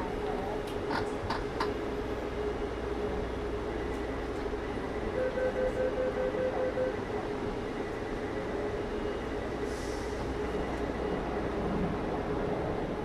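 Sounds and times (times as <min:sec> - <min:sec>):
metro train rumbling: 0:00.0 - 0:13.0.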